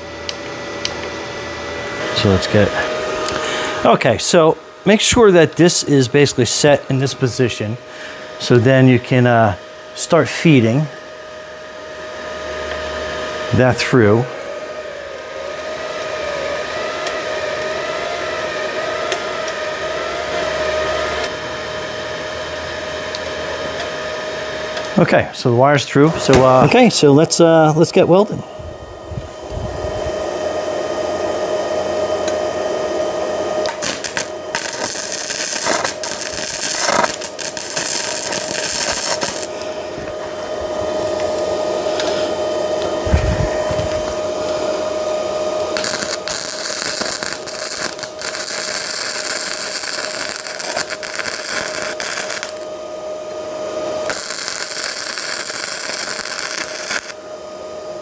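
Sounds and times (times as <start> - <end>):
steady hum: 0.0 - 58.0
welding arc crackling: 33.6 - 39.7, 45.6 - 52.7, 54.0 - 57.3.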